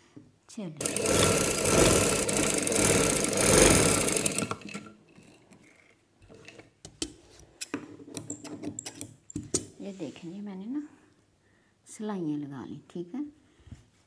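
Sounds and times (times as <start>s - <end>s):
sewing machine running fast: 0.8s - 4.9s.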